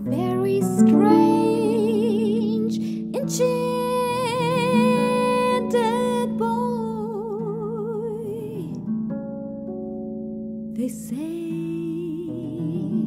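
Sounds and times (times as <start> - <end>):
woman singing with vibrato: 0.0 - 8.8, 10.8 - 13.0
plucked harp: 0.0 - 13.0.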